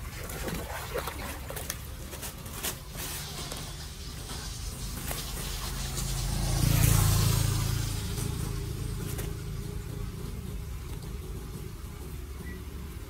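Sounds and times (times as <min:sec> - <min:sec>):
vehicle passing on wet road: 0:02.9 - 0:12.4.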